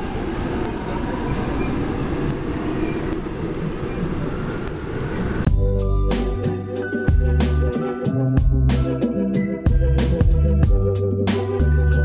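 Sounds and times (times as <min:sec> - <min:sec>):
subway train rumble: 0:00.0 - 0:12.0
music: 0:05.5 - 0:12.0.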